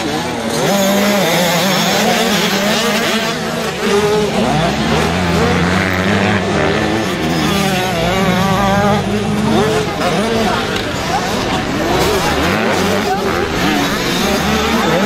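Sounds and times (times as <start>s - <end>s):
dirt bike engines revving: 0.0s - 15.0s.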